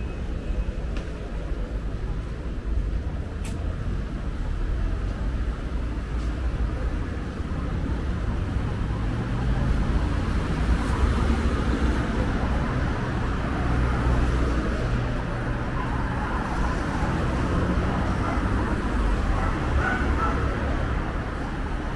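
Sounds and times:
car traffic rumble: 0.0 - 21.9.

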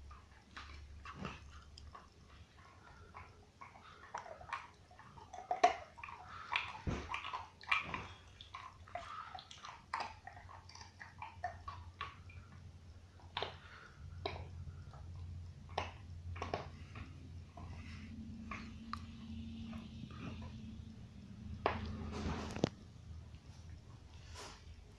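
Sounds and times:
dog chewing a bone: 0.0 - 22.7.

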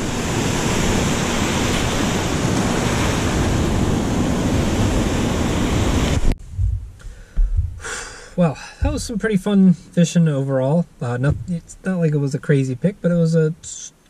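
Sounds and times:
surf washing around rocks: 0.0 - 6.8
wind on microphone: 0.0 - 7.9, 11.2 - 11.7.

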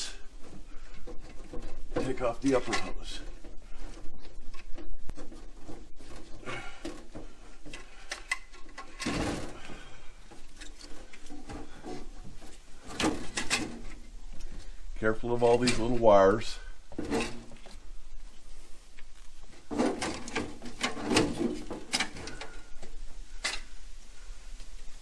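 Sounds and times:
hands working plastic hoses loose: 0.0 - 14.8, 19.1 - 23.7.

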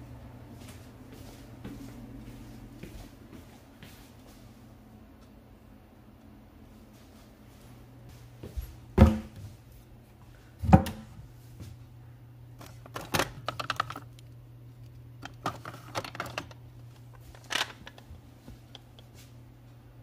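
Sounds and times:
wooden cabinet door knocks: 9.0 - 9.3
batteries clicking and rattling: 12.7 - 18.1.

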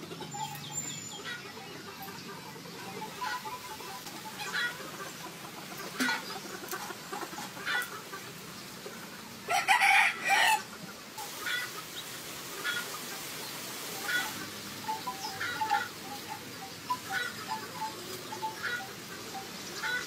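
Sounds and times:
chicken clucks: 0.0 - 20.0
rooster crowing: 9.5 - 10.7.

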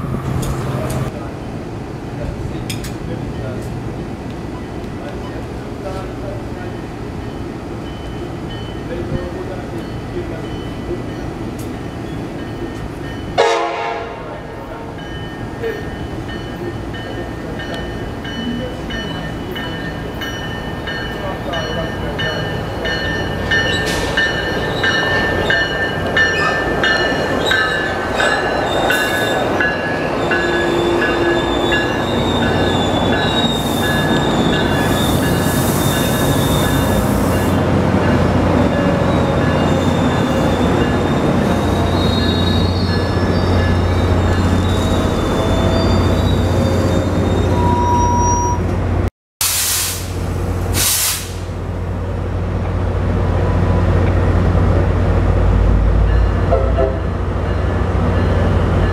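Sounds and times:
diesel locomotive drone: 0.0 - 49.1, 49.7 - 58.9
train brakes squealing: 22.4 - 37.6, 38.7 - 48.7.

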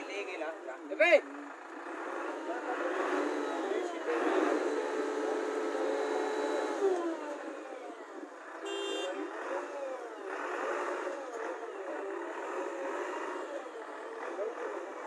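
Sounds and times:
road vehicle noise: 0.0 - 15.0
vehicle horn held: 8.6 - 9.2.

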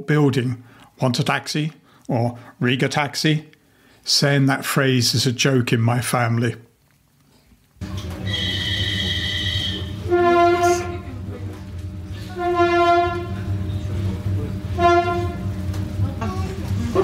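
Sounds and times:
high steady tone: 7.8 - 17.0
train rumbling: 7.8 - 17.0
train horn blasts: 8.1 - 16.0.

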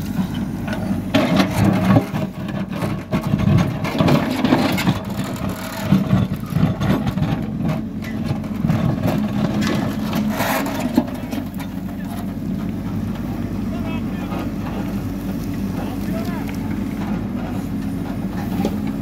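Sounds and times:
diesel engine running under load: 0.0 - 19.0
stones scraping and knocking bucket: 8.4 - 12.2.

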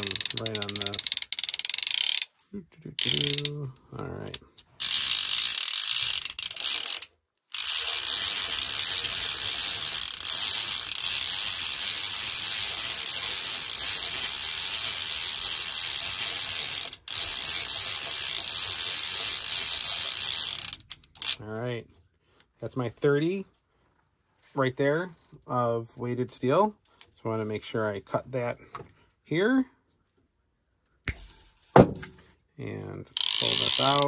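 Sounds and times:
fishing reel being cranked: 0.0 - 2.4, 3.0 - 21.4, 33.1 - 34.0.

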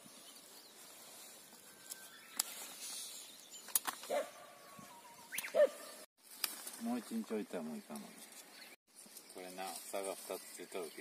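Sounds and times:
pea vines rustling and clicking: 0.4 - 4.3, 6.2 - 11.0
dog barking: 4.1 - 4.5, 5.5 - 6.0.

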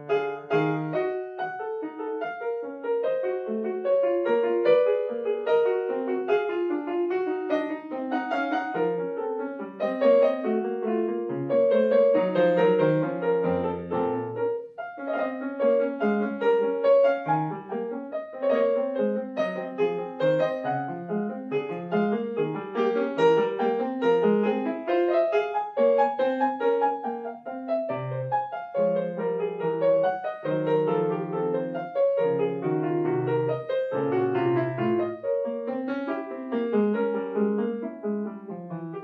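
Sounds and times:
solo grand piano: 0.0 - 39.0.

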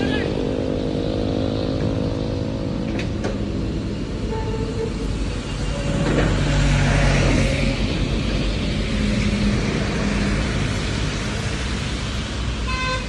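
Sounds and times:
bus going past: 0.0 - 13.0
heavy road traffic passing: 0.0 - 13.0
horn toot: 12.6 - 13.0.

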